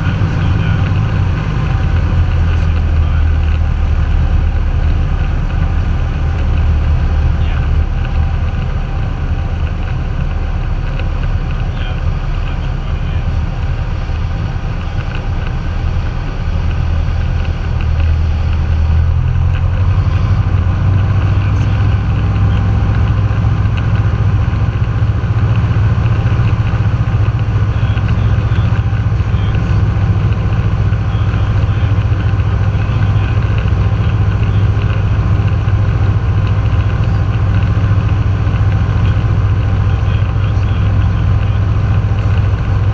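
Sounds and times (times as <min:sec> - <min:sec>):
propeller plane engine droning: 0:00.0 - 0:42.9.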